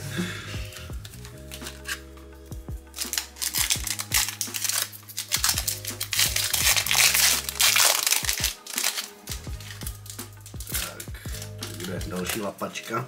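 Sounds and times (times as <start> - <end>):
background music: 0.0 - 13.0
foil pack crinkling: 0.7 - 2.0, 2.9 - 13.0.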